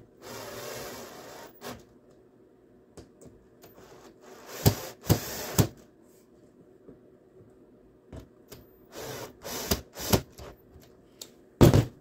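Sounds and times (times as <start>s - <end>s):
cordless drill driving screws: 8.9s - 10.5s.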